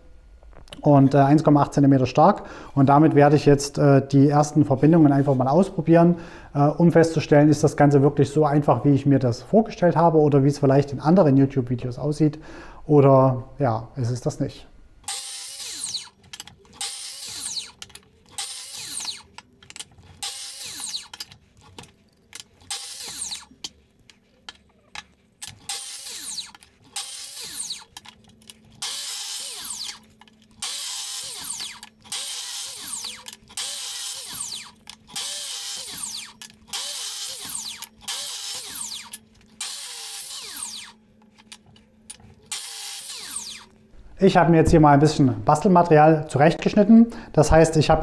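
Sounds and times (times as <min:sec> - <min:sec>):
mitre saw cutting wood: 0:15.1 - 0:19.4, 0:20.0 - 0:21.3, 0:22.6 - 0:23.6, 0:25.5 - 0:27.9, 0:28.8 - 0:41.0, 0:42.5 - 0:43.8.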